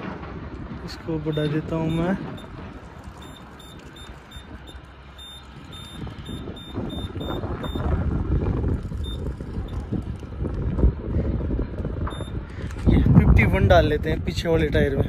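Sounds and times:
short high keypad beeps: 3.2s - 7.9s.

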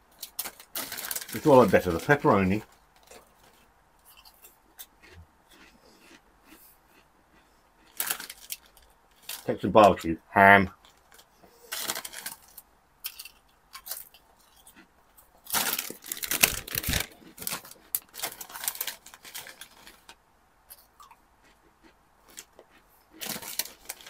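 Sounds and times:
crisp packets crinkling: 0.1s - 4.4s, 7.8s - 10.0s, 10.8s - 14.8s, 15.4s - 20.2s, 22.3s - 24.0s.

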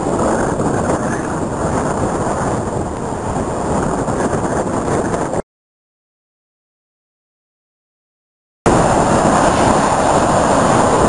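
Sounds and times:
wind rumbling on microphone: 0.0s - 5.4s, 8.7s - 11.0s
sea surf: 8.7s - 11.0s.

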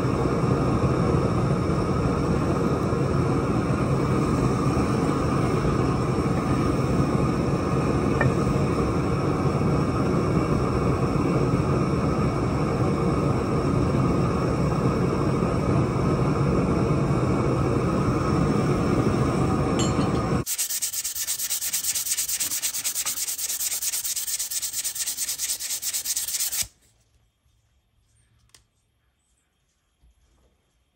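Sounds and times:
hand-sanding wooden handle: 20.4s - 26.7s.

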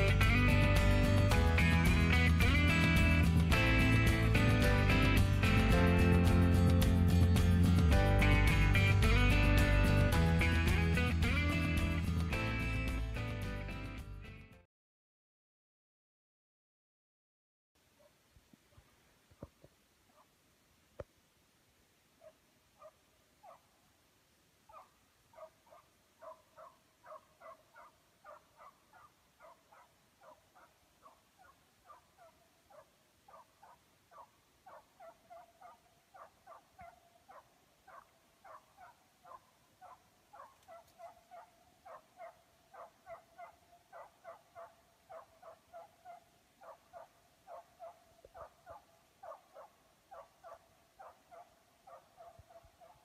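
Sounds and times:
dog yelping barks: 22.2s - 23.7s, 24.7s - 53.0s.

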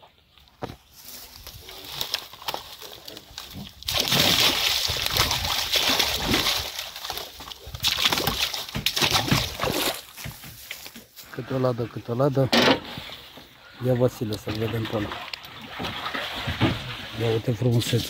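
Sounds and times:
fish splashing in water: 1.5s - 10.2s, 14.3s - 17.2s.

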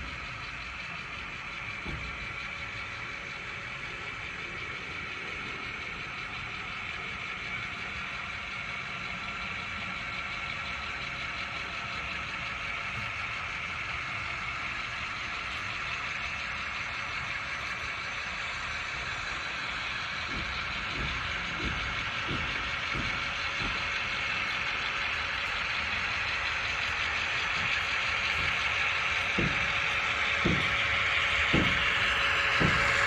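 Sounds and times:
model locomotive mechanical hum: 0.0s - 33.0s
low knocks: 28.3s - 33.0s.

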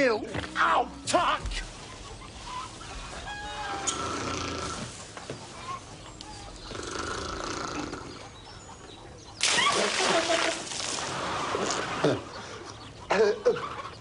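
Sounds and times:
man snoring: 6.8s - 8.1s
loud splash of water: 9.4s - 12.1s.

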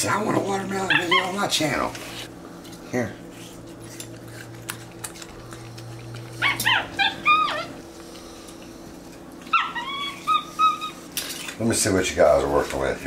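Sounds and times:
steady low hum: 0.0s - 13.0s
monkeys high squeaky calls: 9.6s - 11.0s.

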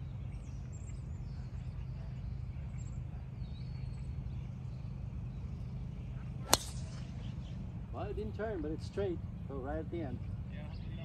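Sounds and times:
steady low rumble: 4.2s - 8.0s.

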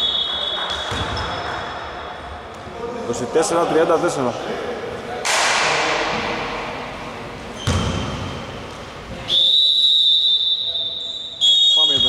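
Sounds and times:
echoing bang: 5.2s - 6.9s
thud: 7.6s - 8.3s
referee's whistle blast: 9.3s - 12.0s.

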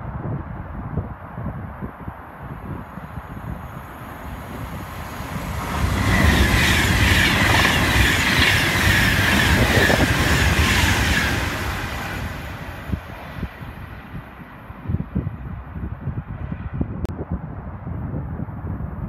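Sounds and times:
train passing at speed: 2.5s - 16.8s
train high whine: 2.9s - 14.8s.

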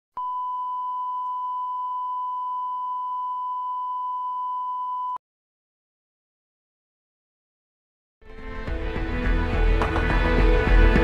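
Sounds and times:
steady test tone beep: 0.2s - 5.2s.

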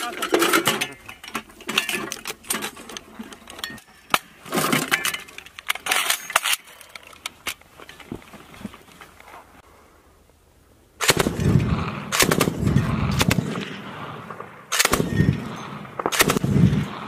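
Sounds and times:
metal cartridge belt clinking: 0.1s - 8.1s.

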